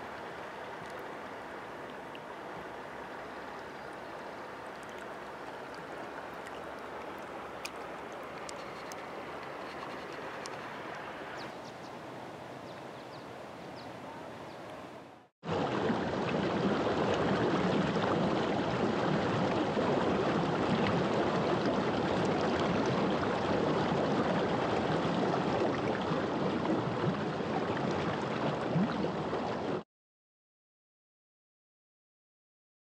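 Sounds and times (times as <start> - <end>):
quiet steady noise: 0.0 - 15.3
rushing stream water: 0.0 - 29.8.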